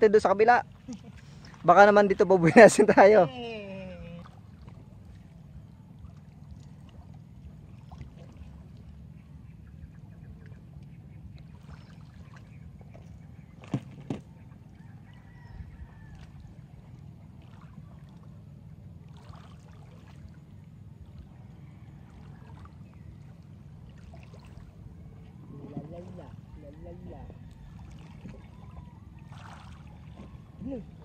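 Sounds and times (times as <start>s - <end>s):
waves lapping on stony shore: 19.0s - 20.5s, 29.2s - 30.1s.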